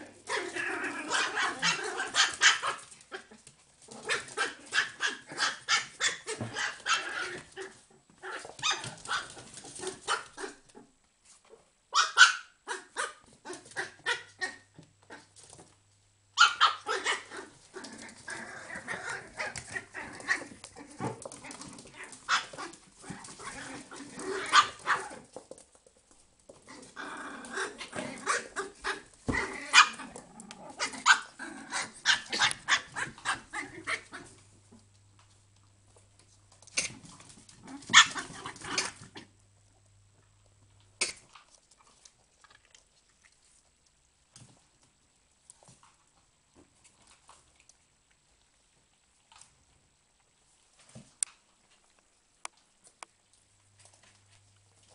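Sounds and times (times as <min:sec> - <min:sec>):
puppies barking and yipping: 0:00.2 - 0:03.4, 0:04.0 - 0:07.8, 0:16.4 - 0:25.2, 0:37.8 - 0:39.1.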